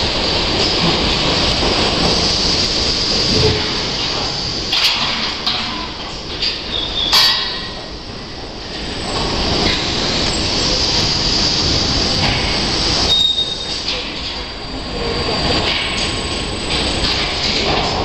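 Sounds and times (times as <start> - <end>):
conveyor machinery running: 0.0 - 18.0
high metallic squeal: 13.0 - 13.8.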